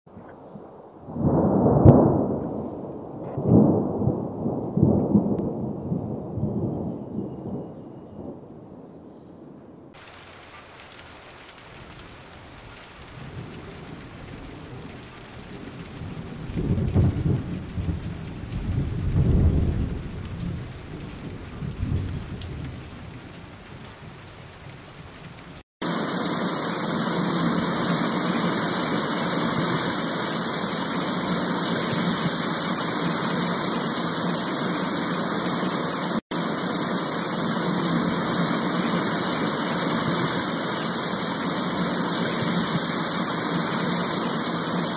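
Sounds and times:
thunder rumbling: 0:00.2 - 0:08.8, 0:10.0 - 0:44.9
heavy rain hissing on ground: 0:10.0 - 0:44.9.

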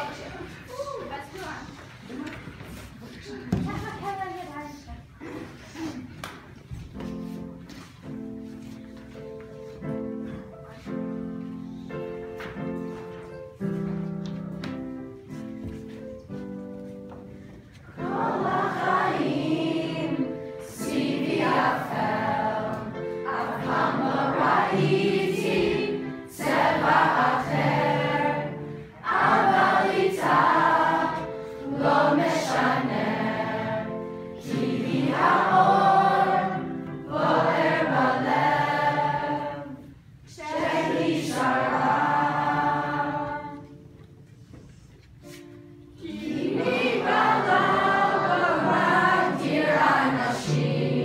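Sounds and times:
group of children singing: 0:18.0 - 0:43.7, 0:46.0 - 0:51.0.

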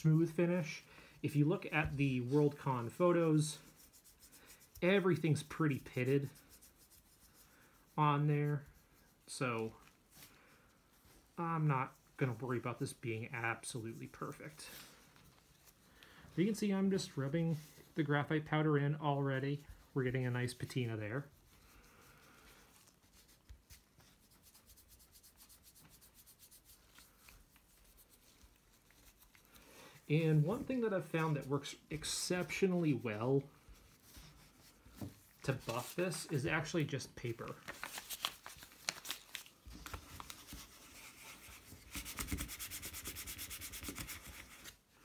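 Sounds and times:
gloved fingers rubbing plastic: 0:00.0 - 0:10.1
paper crinkling: 0:34.0 - 0:44.8.

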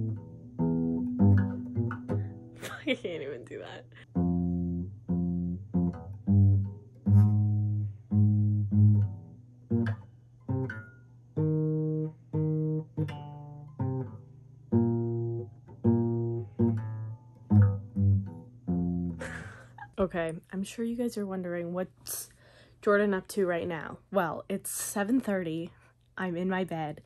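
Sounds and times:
acoustic guitar plucked slowly: 0:00.0 - 0:03.4, 0:04.0 - 0:19.9.

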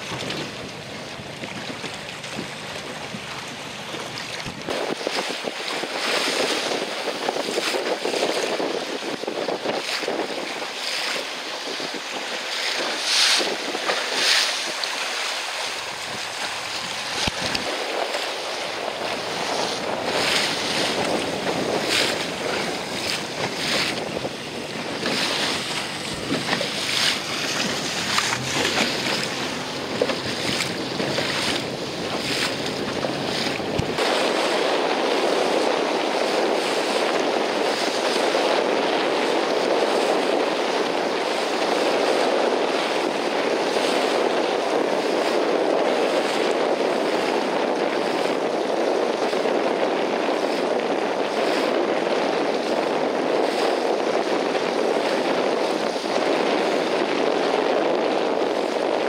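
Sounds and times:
steady rushing noise: 0:00.0 - 0:37.7
waves splashing: 0:00.0 - 0:59.0
wind gusting on microphone: 0:00.0 - 0:59.0.

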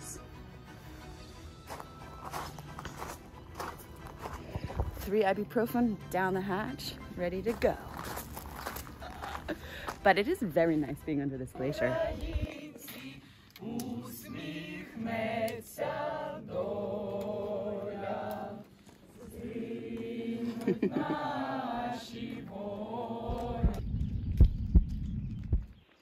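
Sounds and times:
group singing in unison: 0:11.6 - 0:24.0
low rumble: 0:23.2 - 0:25.8.

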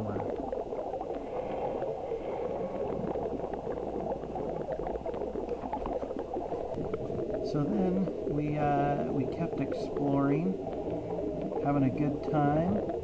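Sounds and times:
underwater bubbling and crackling: 0:00.0 - 0:13.0
small ticks: 0:00.2 - 0:08.1, 0:09.6 - 0:11.6.

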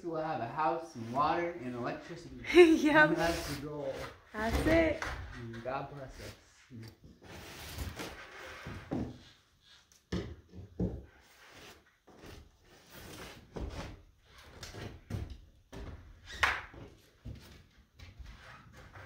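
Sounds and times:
wooden knocks and thuds: 0:10.1 - 0:11.1.

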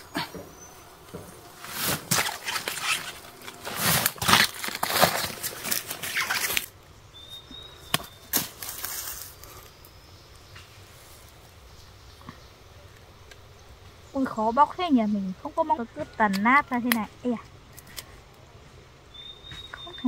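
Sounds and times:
plant sheaths tearing and crackling: 0:01.5 - 0:06.8, 0:07.9 - 0:09.8
stem core snapping: 0:07.9 - 0:09.2, 0:16.2 - 0:17.1.

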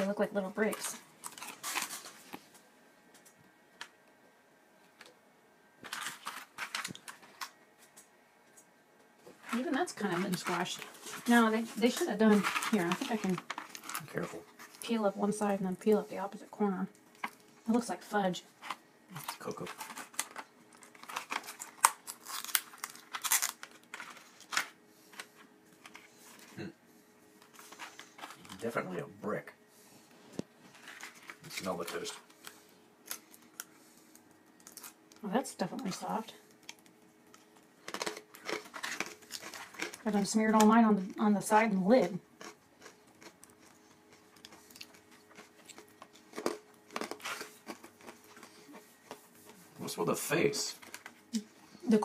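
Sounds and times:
plastic film crinkling: 0:00.0 - 0:02.6, 0:05.8 - 0:08.0, 0:09.3 - 0:16.1, 0:18.6 - 0:26.4, 0:30.4 - 0:35.1, 0:36.5 - 0:40.8, 0:44.4 - 0:51.4
toast crunching: 0:00.6 - 0:04.0, 0:05.8 - 0:16.0, 0:18.5 - 0:26.6, 0:27.4 - 0:28.9, 0:30.3 - 0:35.2, 0:36.4 - 0:40.8, 0:42.3 - 0:49.7, 0:50.6 - 0:51.6.

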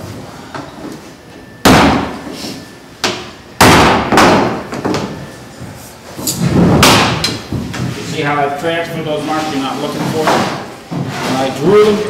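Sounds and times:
hammer striking wood: 0:01.6 - 0:02.1, 0:03.0 - 0:05.0, 0:06.8 - 0:07.4.

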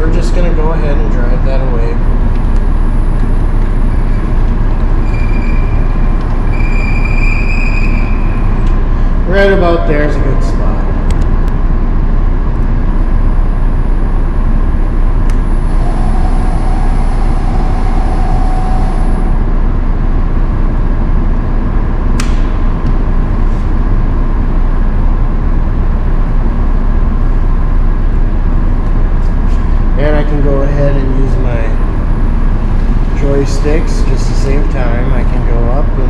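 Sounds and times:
machinery rumbling: 0:00.0 - 0:26.2
faint steady whine: 0:00.0 - 0:36.0
sharp click: 0:22.2 - 0:23.0.

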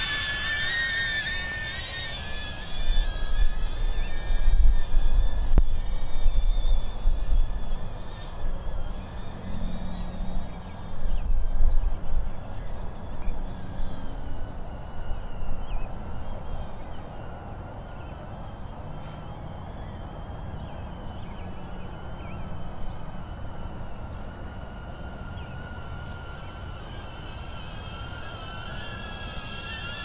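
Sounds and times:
drone propellers whining: 0:00.0 - 0:30.0
wind rumble on microphone: 0:02.3 - 0:16.8.

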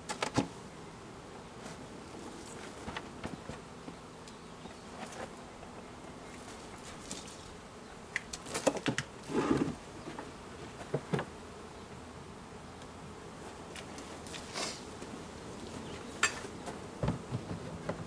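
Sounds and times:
honeybees buzzing: 0:00.0 - 0:18.0
wooden hive boxes knocking: 0:08.2 - 0:11.4, 0:16.3 - 0:18.0.

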